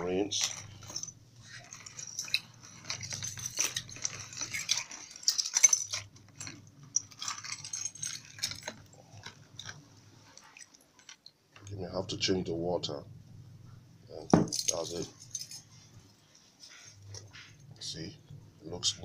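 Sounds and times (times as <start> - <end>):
metal chains clinking: 0.0 - 11.3, 14.1 - 15.8.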